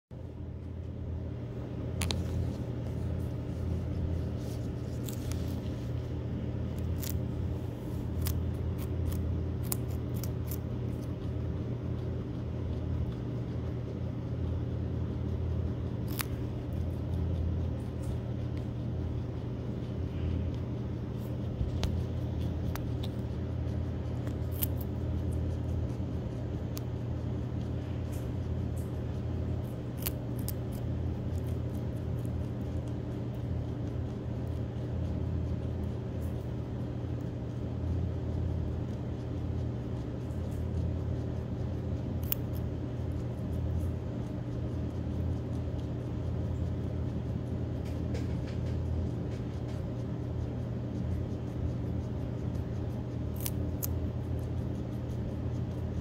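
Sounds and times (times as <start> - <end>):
steady low hum: 0.0 - 56.0
guinea pig crunching carrot: 0.2 - 56.0.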